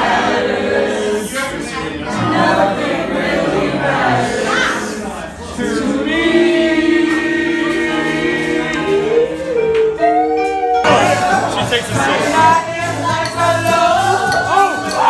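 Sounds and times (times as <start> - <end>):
people singing karaoke: 0.0 - 15.0
backing track music: 5.7 - 15.0.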